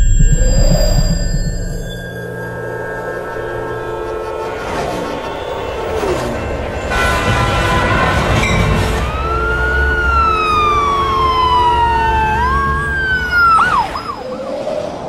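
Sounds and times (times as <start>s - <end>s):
low rumble: 0.0s - 5.7s
wailing sci-fi siren: 0.0s - 15.0s.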